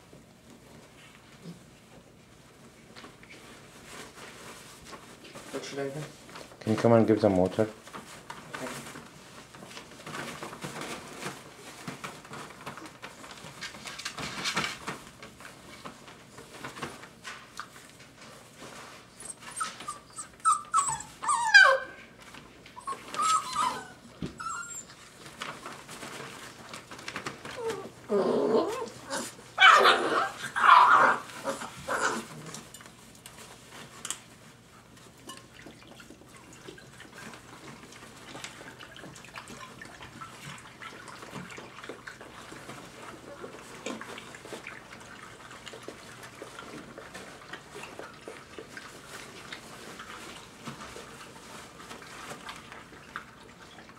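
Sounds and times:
paws pattering on bedding: 0:00.0 - 0:53.9
puppies yelping and whining: 0:19.1 - 0:22.1, 0:22.8 - 0:25.2, 0:27.5 - 0:32.6.

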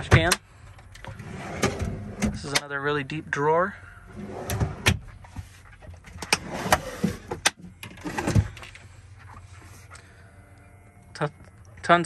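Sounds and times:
drawers sliding open and shut: 0:01.0 - 0:02.7, 0:04.1 - 0:08.6.

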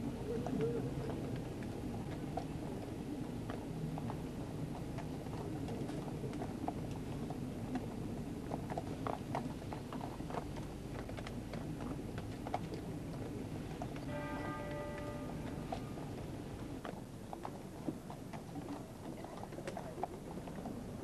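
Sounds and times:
horse hooves clopping on road: 0:00.0 - 0:21.0
ringing tone: 0:14.1 - 0:16.2.

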